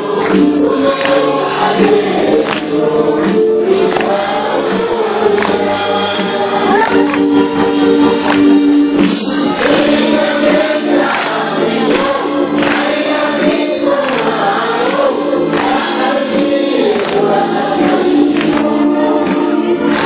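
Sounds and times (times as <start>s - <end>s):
group of voices singing: 0.0s - 20.0s
musical accompaniment: 0.0s - 20.0s.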